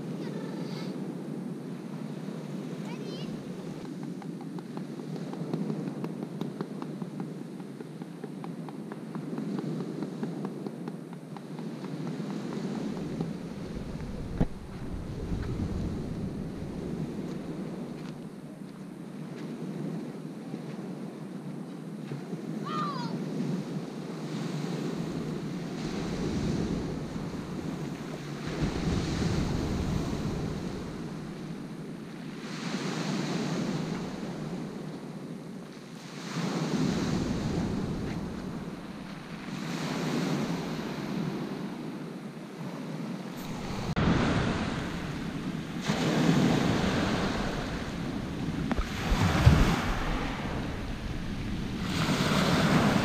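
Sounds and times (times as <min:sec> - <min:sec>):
wind buffeting microphone: 0:00.0 - 0:53.0
waves washing on pebble beach: 0:24.2 - 0:34.9, 0:43.3 - 0:53.0.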